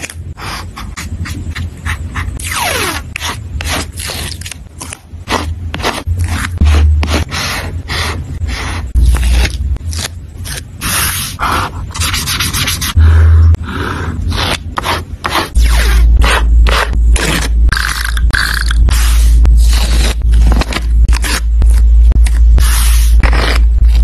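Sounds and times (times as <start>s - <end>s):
tape and stickers rubbing on paper: 5.3s - 13.0s, 18.9s - 24.0s.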